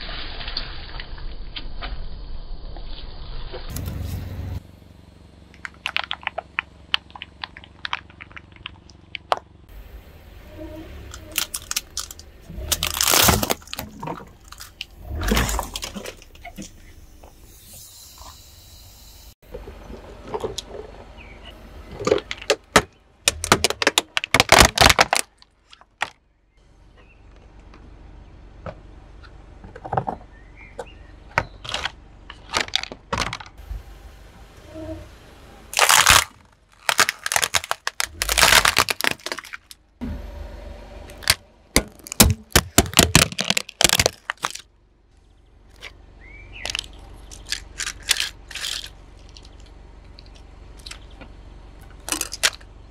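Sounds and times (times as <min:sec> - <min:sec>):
objects crushed under car tyre: 0:11.2 - 0:16.8, 0:21.9 - 0:26.2, 0:35.8 - 0:39.8, 0:41.2 - 0:44.7.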